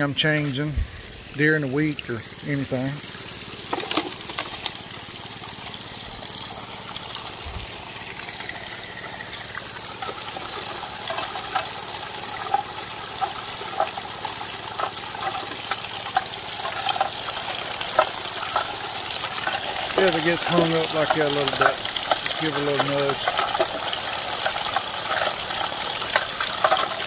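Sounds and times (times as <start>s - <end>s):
water rushing through trommel: 0.0s - 27.0s
gravel and rocks rattling: 3.6s - 5.0s, 8.4s - 27.0s.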